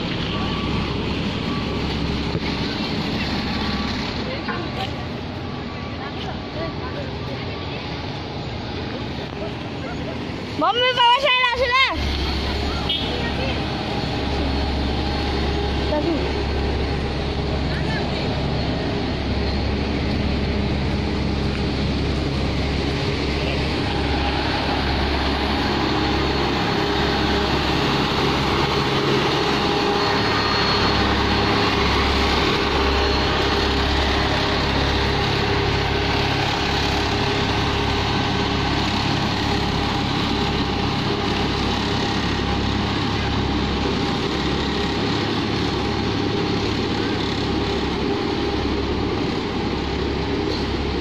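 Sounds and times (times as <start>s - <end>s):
road roller diesel engine: 0.0s - 51.0s.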